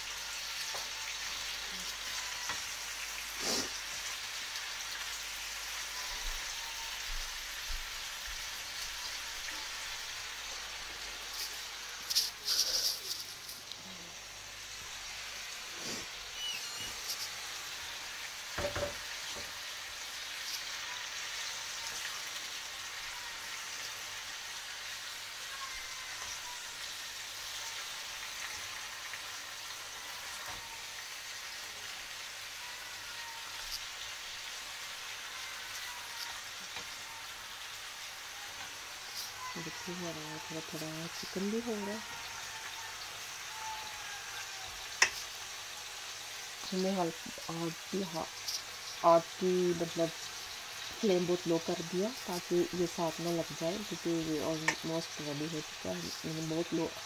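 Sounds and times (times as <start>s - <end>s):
vegetables sizzling in oil: 0.0s - 57.0s
wooden spatula knocking pan: 18.6s - 19.5s.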